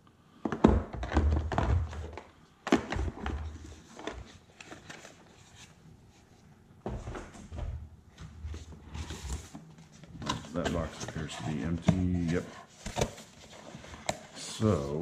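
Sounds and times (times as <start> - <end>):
packaging and cables handled: 1.0 - 5.8.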